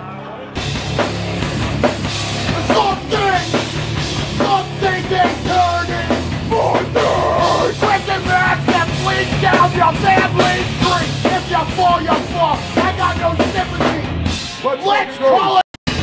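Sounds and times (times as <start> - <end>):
punk band playing loud: 0.6 - 14.9
person shouting vocals: 6.5 - 8.4.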